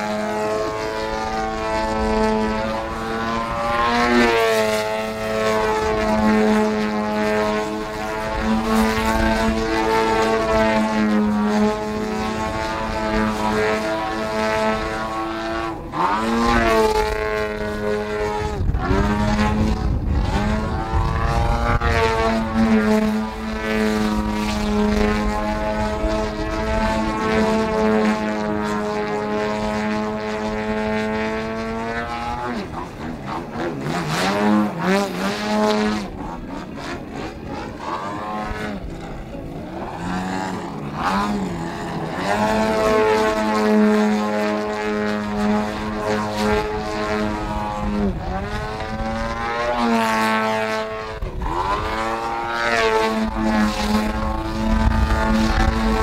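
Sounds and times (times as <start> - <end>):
model plane petrol engine: 0.0 - 56.0.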